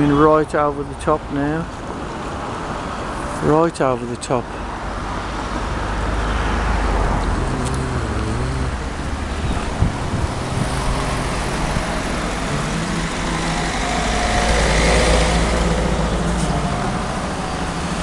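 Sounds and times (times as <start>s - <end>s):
road traffic passing: 0.0s - 18.0s
vehicle engine passing: 5.4s - 18.0s.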